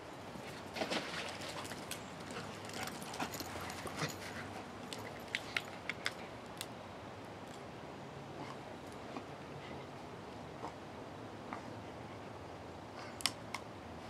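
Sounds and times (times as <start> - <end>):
sharp clicks and snaps: 13.2 - 13.7.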